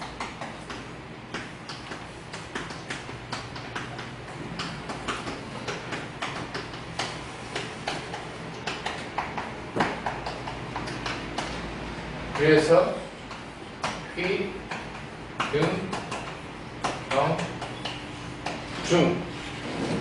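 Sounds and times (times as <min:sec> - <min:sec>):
chalk tapping and scraping board: 0:00.0 - 0:11.5.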